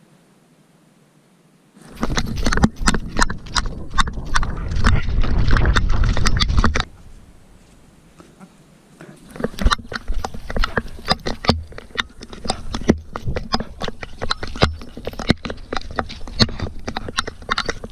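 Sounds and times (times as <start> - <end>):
low rumble: 3.0 - 7.4.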